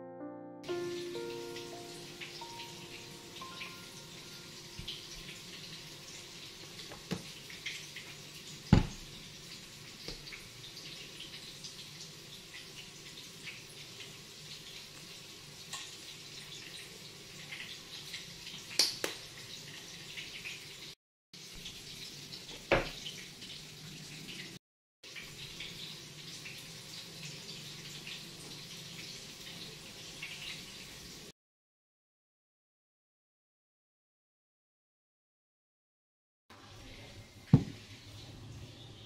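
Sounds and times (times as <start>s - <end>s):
tableware knocking on table: 8.8s - 9.0s, 37.6s - 37.8s.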